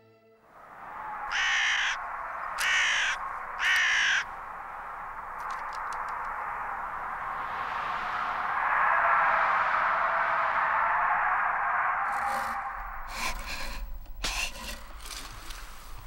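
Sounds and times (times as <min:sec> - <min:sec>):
crow cawing: 0:00.8 - 0:06.7.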